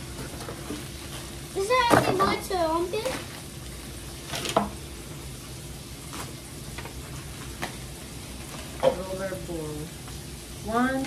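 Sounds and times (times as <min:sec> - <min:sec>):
plastic and paper crinkling: 0:00.2 - 0:04.6, 0:06.0 - 0:09.2.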